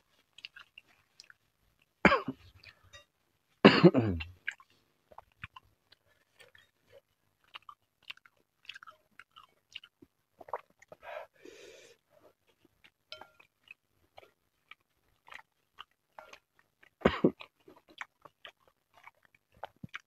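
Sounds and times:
person chewing: 0:00.0 - 0:03.1, 0:04.2 - 0:11.1, 0:12.3 - 0:20.0.

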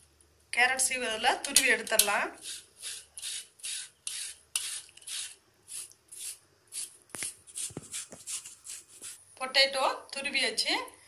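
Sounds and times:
potato grating on metal grater: 0:01.9 - 0:09.2.

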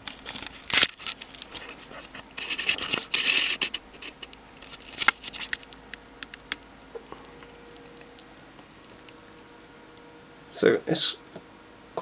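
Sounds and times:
rustling and scraping handling noise: 0:00.0 - 0:05.8
faint steady hum: 0:00.0 - 0:12.0.

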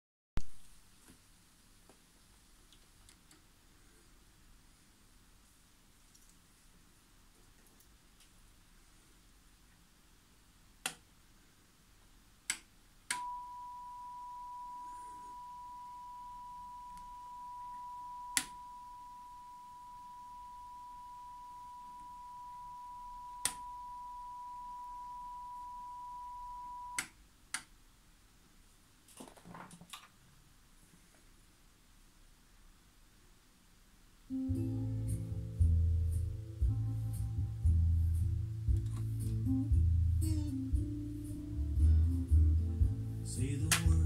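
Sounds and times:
steady pure test tone: 0:13.1 - 0:27.1.

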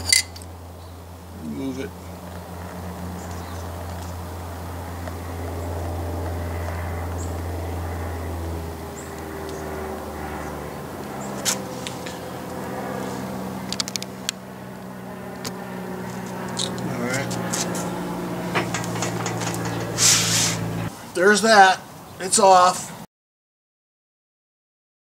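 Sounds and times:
metal clinks: 0:00.0 - 0:00.5
low engine-like hum: 0:00.0 - 0:21.1.

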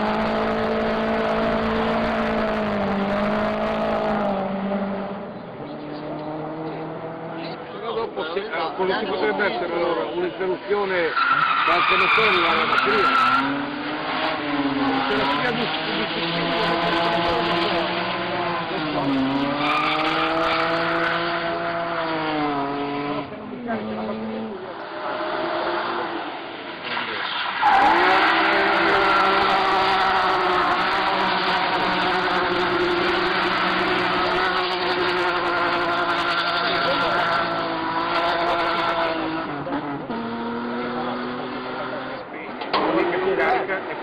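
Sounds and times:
car engine revving high: 0:00.0 - 0:07.8, 0:11.8 - 0:26.3, 0:27.6 - 0:43.7
tyres squealing: 0:10.9 - 0:16.0, 0:27.2 - 0:31.9.

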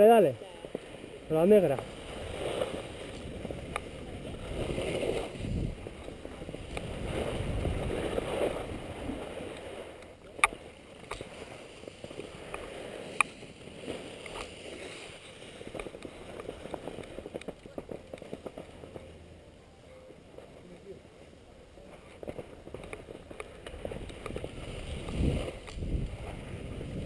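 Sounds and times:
skis scraping on snow: 0:00.0 - 0:19.5, 0:20.2 - 0:27.0
wind rushing over microphone: 0:02.0 - 0:10.0, 0:23.7 - 0:27.0.

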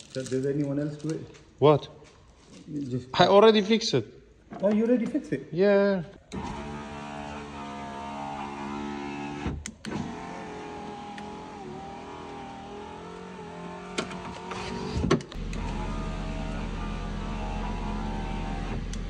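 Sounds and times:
power window motor whine: 0:06.3 - 0:19.0
window mechanism clicks: 0:13.7 - 0:15.9.

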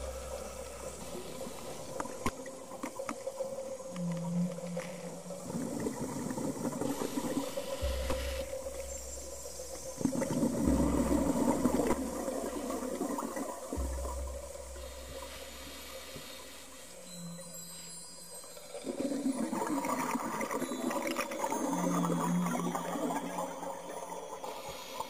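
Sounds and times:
exhaled bubbles rushing: 0:08.4 - 0:15.3.

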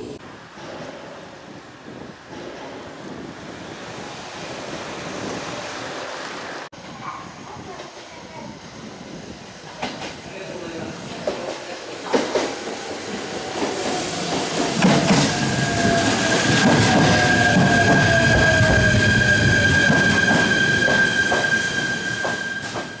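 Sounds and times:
high brake squeal: 0:15.3 - 0:23.0.

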